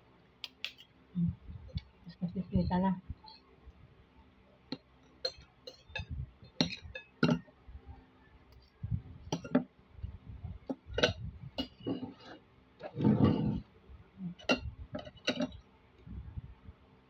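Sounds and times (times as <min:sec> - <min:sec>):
cutlery clinking on a plate: 0:05.2 - 0:07.5, 0:09.3 - 0:09.6, 0:10.7 - 0:13.4, 0:14.4 - 0:15.6.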